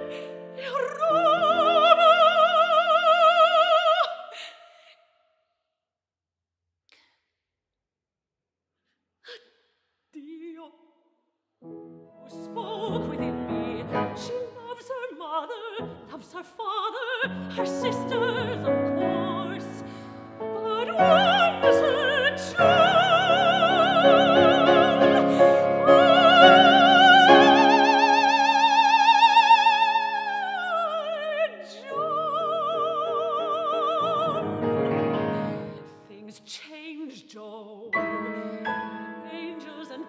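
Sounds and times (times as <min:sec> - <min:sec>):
woman singing opera: 0:00.0 - 0:04.7, 0:10.2 - 0:10.8, 0:12.2 - 0:40.0
grand piano accompaniment: 0:11.6 - 0:14.7, 0:17.3 - 0:30.5, 0:31.2 - 0:36.0, 0:38.0 - 0:40.0.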